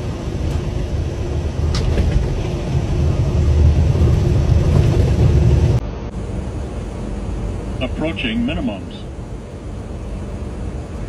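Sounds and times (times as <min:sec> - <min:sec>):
jet engines rumbling: 0:00.0 - 0:11.0.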